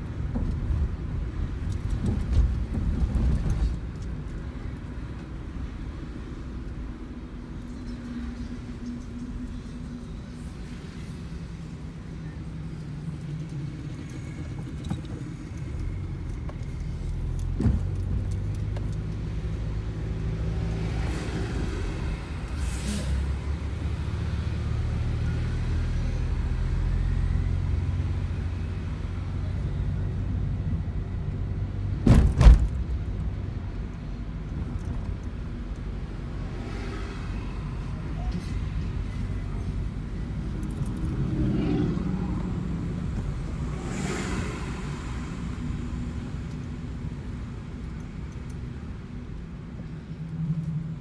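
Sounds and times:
car engine and road rumble: 0.0 - 51.0.

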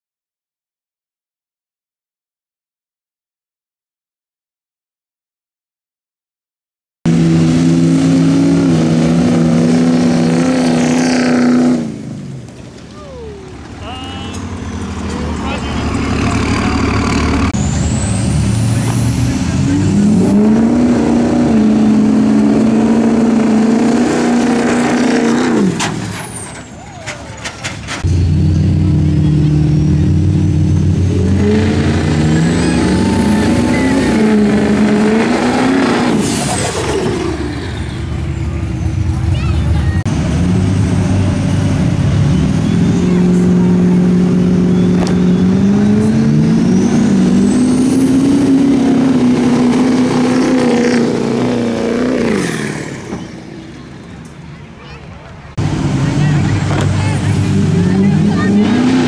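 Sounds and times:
diesel truck engines at full throttle: 7.1 - 59.0.

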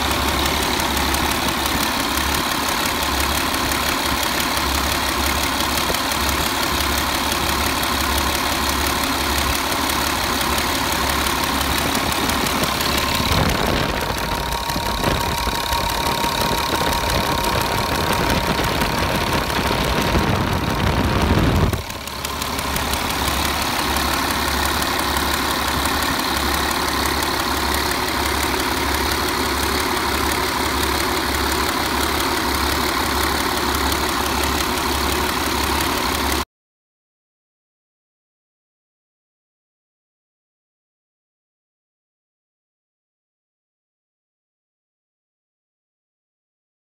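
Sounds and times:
diesel engine idling: 0.0 - 36.4.

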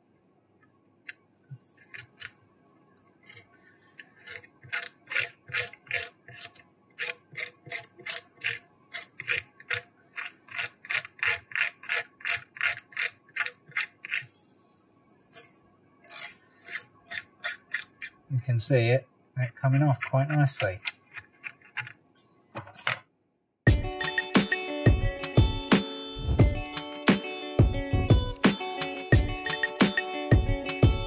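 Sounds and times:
metal blade scraping glass: 15.3 - 18.2.

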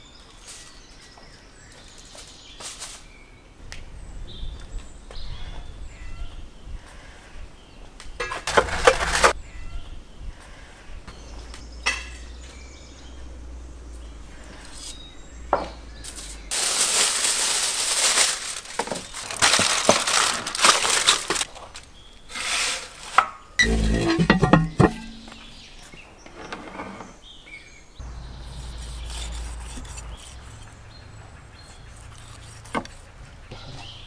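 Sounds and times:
aluminium foil crinkling: 16.5 - 25.0.

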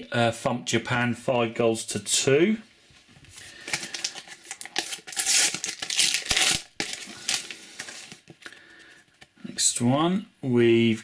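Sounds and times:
wrapper crinkling and tearing: 3.3 - 8.6.

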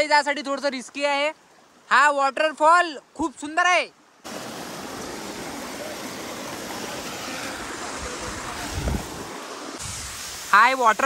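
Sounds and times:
waterfall rushing: 4.2 - 11.0.

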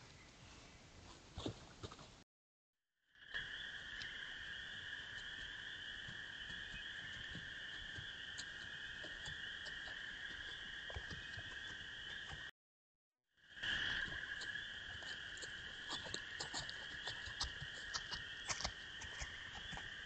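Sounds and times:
frogs droning: 3.1 - 12.5, 13.4 - 20.0
faint scattered ticks: 3.2 - 12.5, 13.6 - 20.0.

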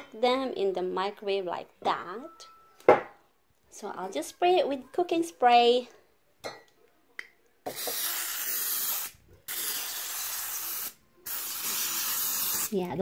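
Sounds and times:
aerosol can hissing: 7.7 - 12.8.

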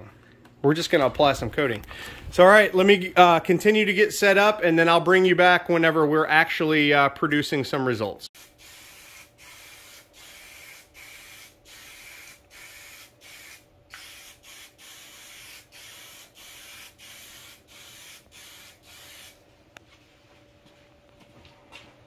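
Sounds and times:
aerosol spray can hissing: 8.4 - 19.4.

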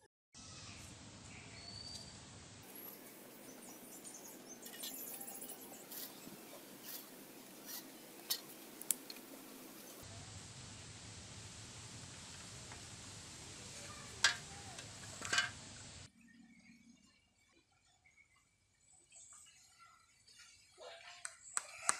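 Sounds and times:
light clicks and knocks of bamboo: 4.6 - 10.0, 14.2 - 15.6.

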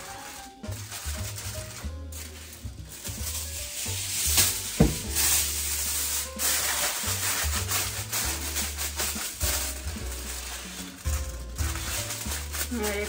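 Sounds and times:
aluminium foil crinkling: 0.0 - 13.0
background music with bass: 0.0 - 13.0
thump: 4.8 - 5.3.

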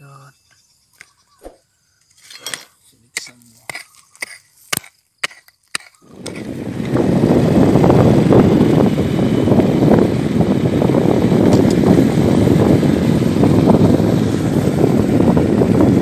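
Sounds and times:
digging tool striking stones: 2.2 - 6.4
wind rushing on microphone: 6.0 - 16.0.

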